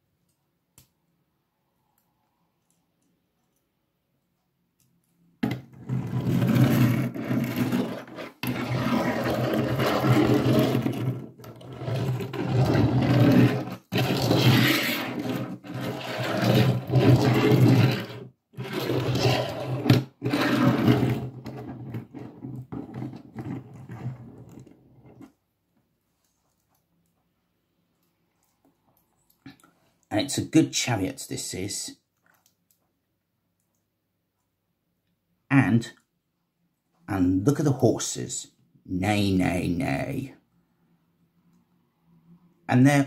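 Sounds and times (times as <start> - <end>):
loud scraping and rubbing: 5.4 - 25.3.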